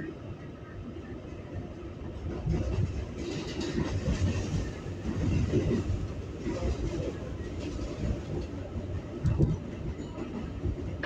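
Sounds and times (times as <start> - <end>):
subway car rumble: 0.0 - 11.0.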